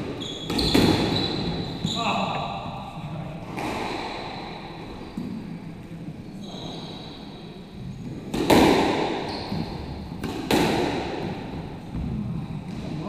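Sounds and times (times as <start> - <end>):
squash ball hit echoing: 0.0 - 1.6, 3.5 - 5.4, 8.3 - 12.9.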